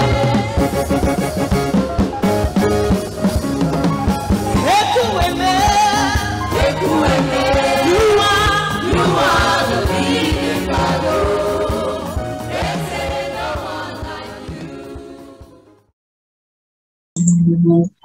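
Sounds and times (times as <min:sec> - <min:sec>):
women singing into microphones: 0:00.0 - 0:00.8, 0:04.7 - 0:12.1
electric guitar: 0:00.0 - 0:10.0.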